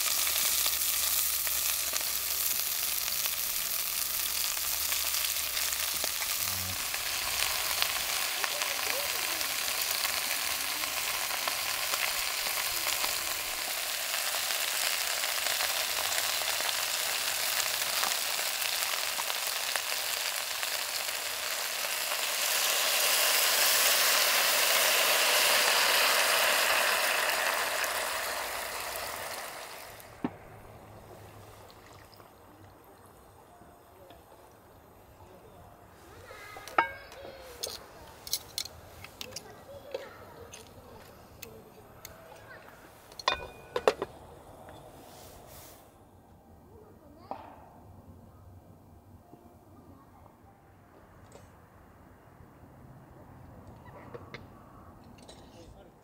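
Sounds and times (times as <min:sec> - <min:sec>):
food sizzling in a pot: 0:00.0 - 0:32.4, 0:36.0 - 0:39.3, 0:42.1 - 0:45.9.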